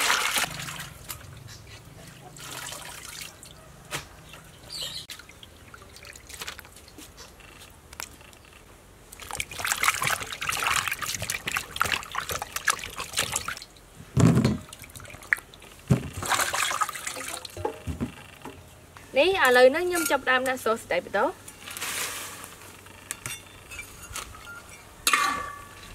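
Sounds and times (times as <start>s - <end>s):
water splashing in a bowl: 0.0s - 1.4s, 2.0s - 3.6s, 5.1s - 7.1s, 9.1s - 13.9s, 14.6s - 17.7s.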